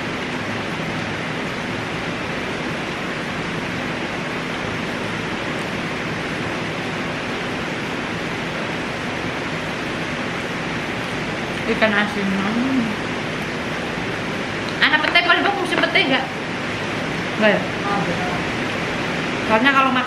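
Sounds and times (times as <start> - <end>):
steady rushing noise: 0.0 - 20.0.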